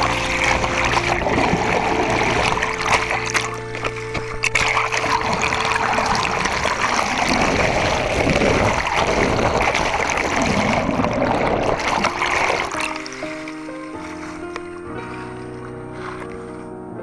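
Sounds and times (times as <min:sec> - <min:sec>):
water rushing and gurgling: 0:00.0 - 0:16.7.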